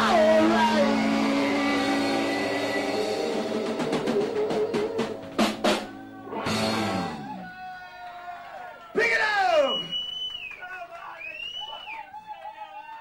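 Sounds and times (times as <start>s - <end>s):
live rock band: 0.0s - 7.6s.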